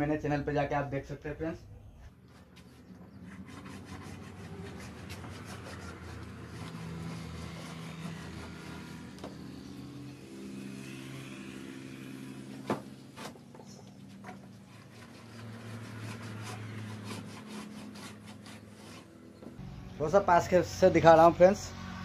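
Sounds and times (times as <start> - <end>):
engine hum: 1.2 - 22.0
marking gauge scraping wood: 2.2 - 9.4, 13.2 - 19.6.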